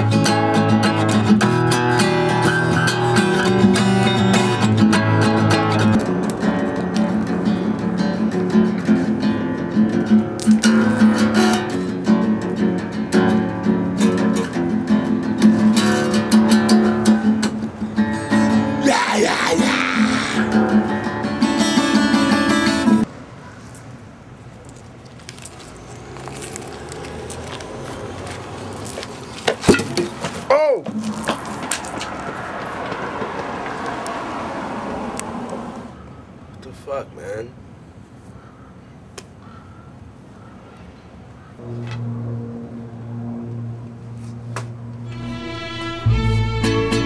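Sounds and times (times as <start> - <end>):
acoustic guitar strumming: 0.0 - 23.0, 45.0 - 47.0
man singing: 18.7 - 20.6.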